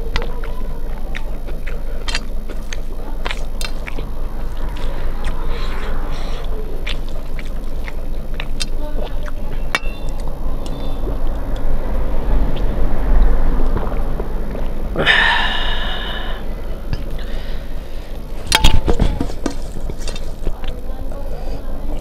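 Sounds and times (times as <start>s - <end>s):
wet mouth sounds: 0.0s - 11.7s
short vocal sound: 14.9s - 17.7s.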